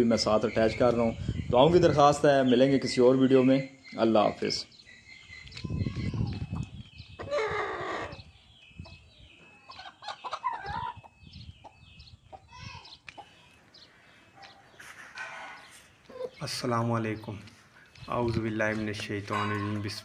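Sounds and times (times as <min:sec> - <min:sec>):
chickens clucking and calling: 0:04.8 - 0:16.5, 0:19.2 - 0:20.0.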